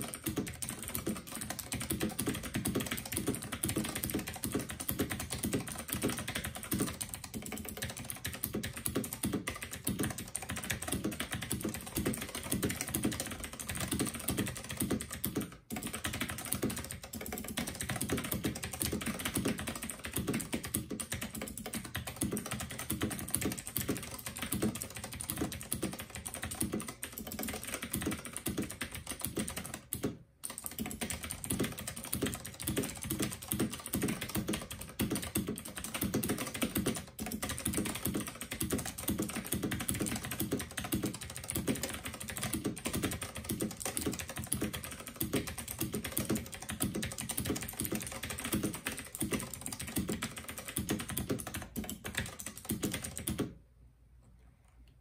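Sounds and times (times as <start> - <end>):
mechanical keyboard typing: 0.0 - 53.6.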